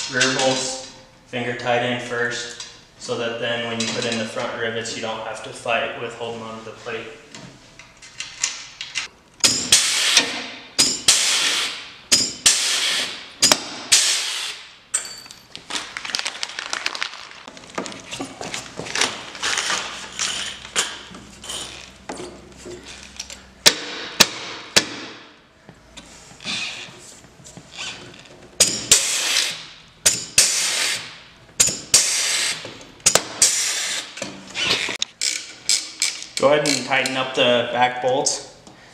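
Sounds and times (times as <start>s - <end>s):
pneumatic rivet gun hissing: 9.7s - 10.4s, 11.1s - 13.2s, 13.9s - 14.7s, 28.9s - 29.6s, 30.4s - 31.1s, 31.9s - 32.6s, 33.4s - 35.0s.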